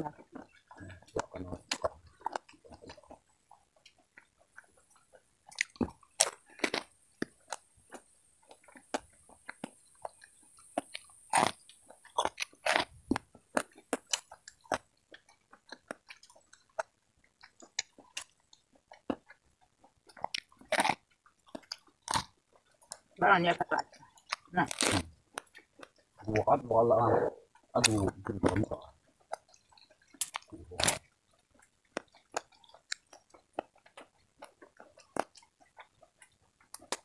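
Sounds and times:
crunchy chewing of corn: 0.0s - 37.0s.

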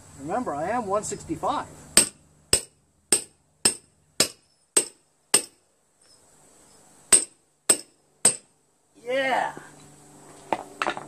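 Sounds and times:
hammer striking metal: 2.0s - 5.6s, 7.1s - 8.5s.

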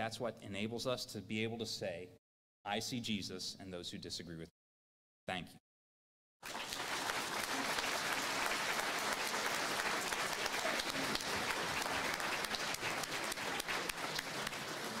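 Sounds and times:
audience applause: 6.4s - 15.0s.

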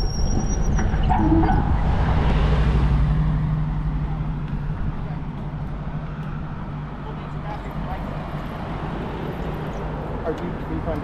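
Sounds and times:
steady low traffic rumble: 0.0s - 11.0s
car passing close by: 1.5s - 4.4s.

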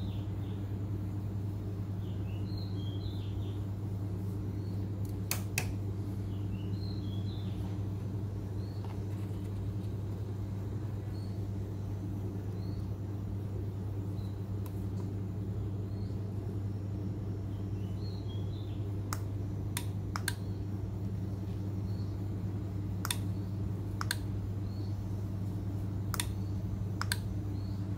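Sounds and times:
low electrical hum: 0.0s - 27.9s
faint bird chirps: 1.9s - 5.0s, 6.2s - 9.6s, 10.8s - 13.0s, 15.5s - 19.0s, 23.2s - 25.6s, 26.2s - 27.9s
sharp clicks: 5.0s - 5.8s, 19.1s - 20.5s, 23.0s - 23.3s, 24.0s - 24.3s, 26.1s - 27.4s.

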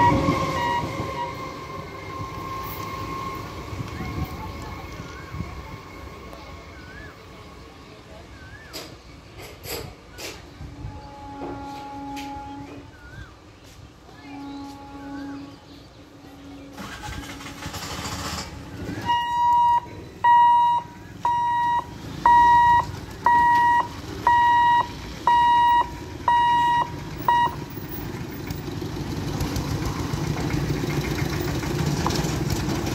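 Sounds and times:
road vehicle engines: 0.0s - 32.9s
barrier warning buzzer beeping: 19.0s - 27.7s.

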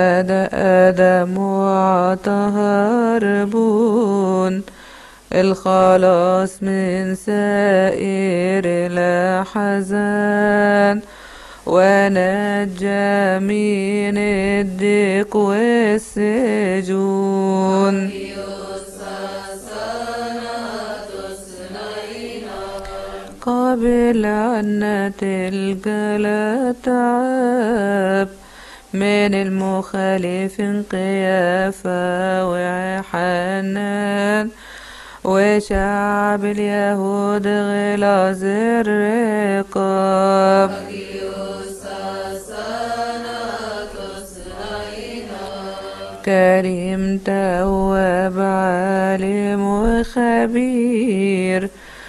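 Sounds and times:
chanted hymn singing: 11.7s - 28.4s, 35.3s - 51.7s
solo voice singing: 11.7s - 34.6s, 35.2s - 51.8s
hymn chanting: 17.0s - 23.8s, 40.0s - 47.0s.

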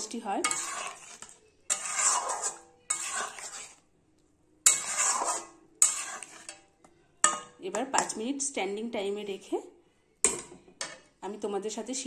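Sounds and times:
spatula scraping in metal pan: 0.0s - 3.9s, 4.6s - 8.2s.

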